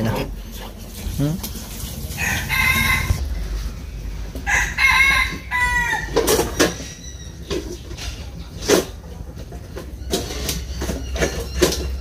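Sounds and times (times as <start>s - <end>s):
rooster crowing: 2.2s - 3.5s, 4.4s - 6.4s.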